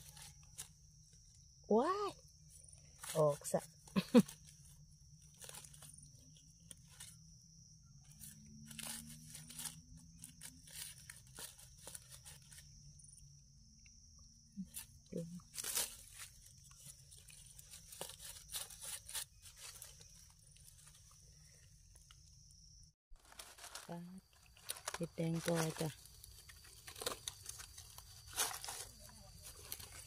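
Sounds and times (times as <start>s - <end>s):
dry leaf litter crackling: 3.0s - 7.1s, 8.2s - 12.6s, 15.4s - 21.2s, 23.2s - 30.0s
knife scraping in soil: 4.1s - 7.3s, 8.0s - 12.8s, 14.6s - 21.3s, 23.2s - 30.0s.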